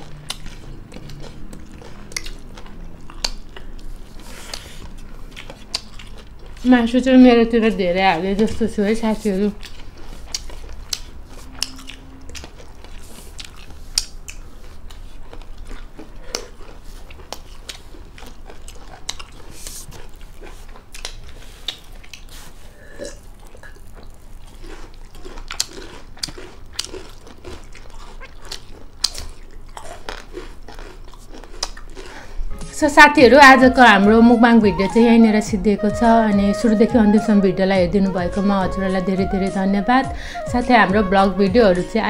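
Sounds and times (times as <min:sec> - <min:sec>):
crunchy cucumber bite: 0:00.0 - 0:06.6, 0:23.0 - 0:32.3
people chewing and lip-smacking: 0:00.0 - 0:06.7, 0:09.4 - 0:32.7.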